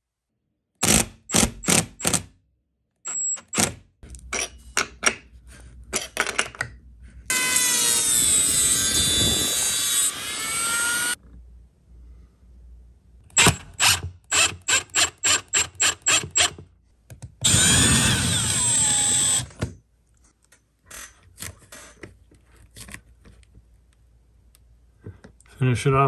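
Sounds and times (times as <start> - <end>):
cordless drill whirring: 7.3 - 11.2, 13.4 - 16.6, 17.4 - 19.6.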